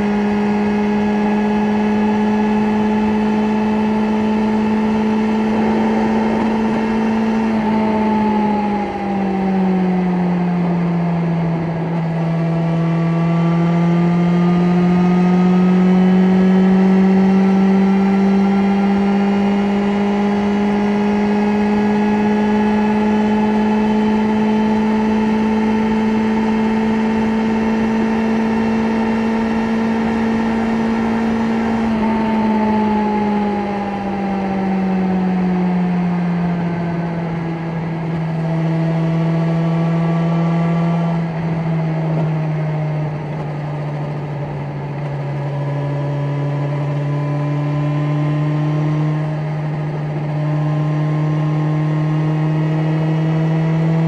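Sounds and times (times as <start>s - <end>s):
motorcycle engine pulling: 2.4s - 9.4s.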